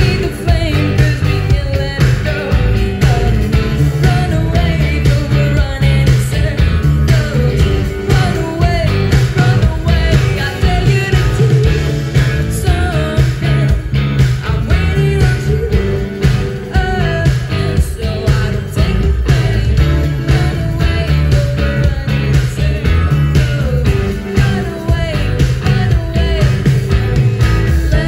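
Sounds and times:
bass guitar: 0:00.0 - 0:28.0
electric guitars: 0:00.0 - 0:28.0
steady drum beat: 0:00.0 - 0:28.0
woman singing: 0:00.0 - 0:28.0.

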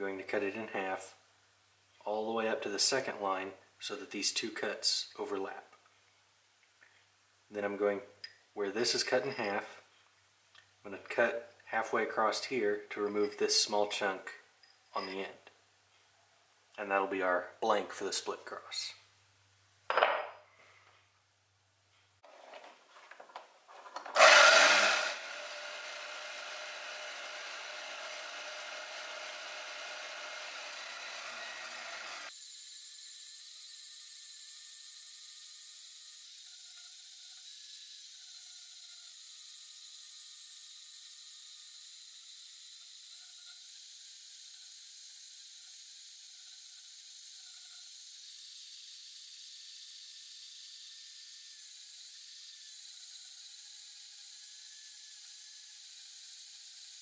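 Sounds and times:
bandsaw cutting steel bar: 0:24.1 - 0:35.1.

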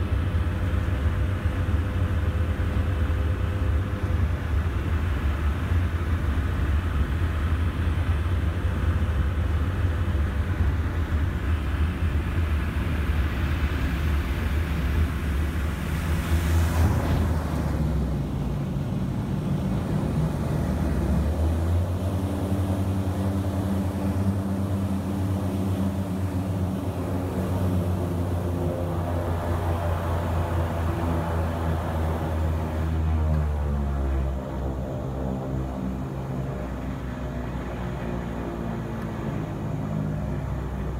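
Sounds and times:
turboprop engines droning: 0:00.0 - 0:40.9.

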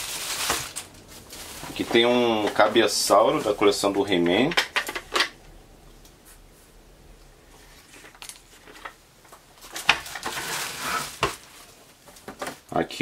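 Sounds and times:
packaging crinkling: 0:00.0 - 0:05.4, 0:07.8 - 0:12.7.

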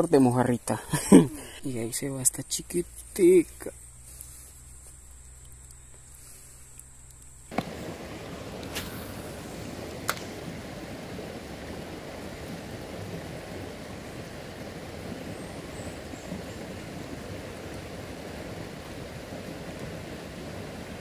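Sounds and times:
stream flowing over stones: 0:07.1 - 0:21.0.

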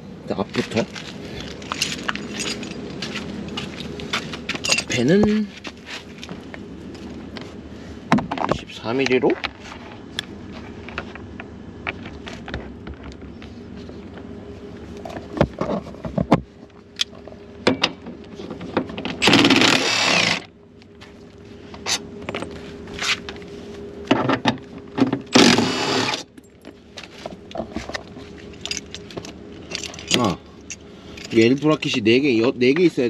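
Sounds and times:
impact wrench bursts: 0:19.2 - 0:20.5, 0:25.3 - 0:26.3.

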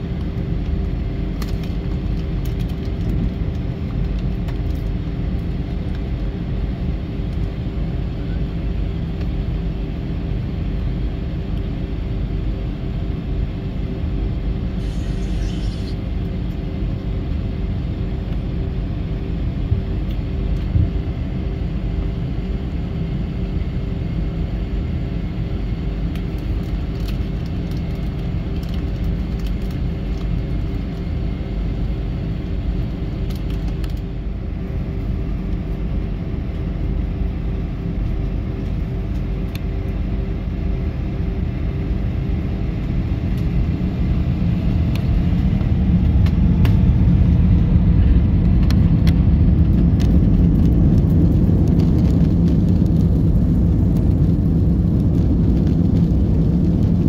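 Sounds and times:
jet engines idling rumble: 0:00.0 - 0:57.0.

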